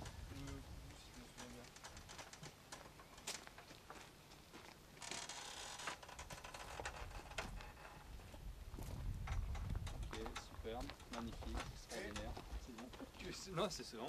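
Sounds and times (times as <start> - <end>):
footsteps crunching on gravel: 2.4 - 5.4, 7.2 - 13.5.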